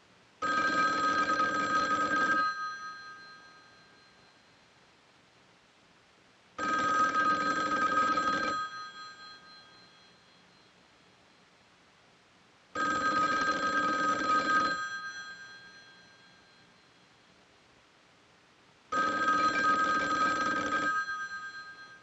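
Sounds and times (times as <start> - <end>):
telephone bell ringing: 0.4 - 4.7, 6.6 - 10.8, 12.8 - 17.0, 18.9 - 22.0.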